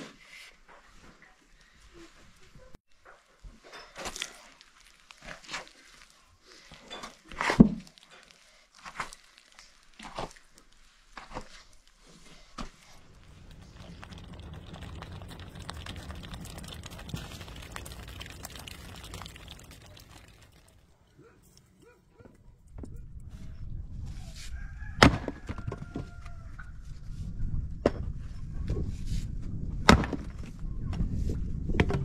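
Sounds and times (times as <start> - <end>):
hands kneading bread dough: 4.1 - 23.0.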